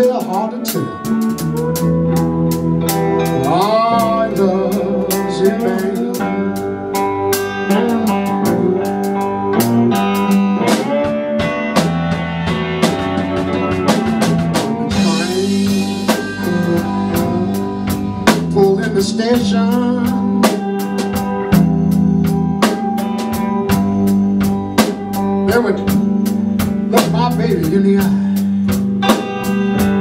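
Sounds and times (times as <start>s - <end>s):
man singing: 0.0s - 1.2s, 3.2s - 6.8s, 7.7s - 9.1s, 14.6s - 20.8s, 26.9s - 28.4s
drum kit beat: 0.0s - 30.0s
guitar: 0.0s - 30.0s.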